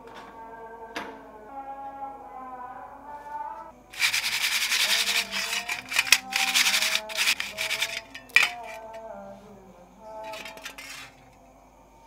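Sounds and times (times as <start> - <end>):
bicycle chain rattling in metal dish: 4.0 - 9.0, 10.2 - 11.2.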